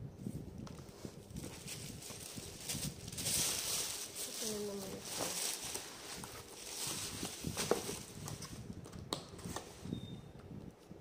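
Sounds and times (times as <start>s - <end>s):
cardboard boxes rustling: 0.8s - 8.6s.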